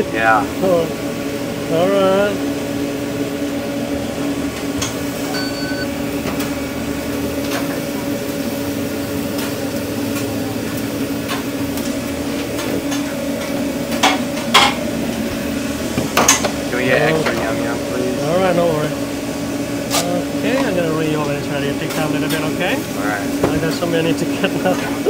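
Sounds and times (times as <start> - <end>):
kitchen equipment hum: 0.0 - 25.0
short electronic beep: 5.3 - 5.9.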